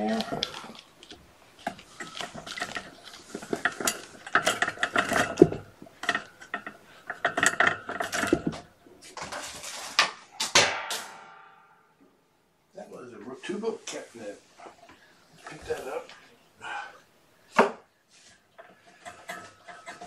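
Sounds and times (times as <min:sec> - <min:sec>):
food dishes clattering: 0:00.0 - 0:11.2, 0:18.5 - 0:20.0.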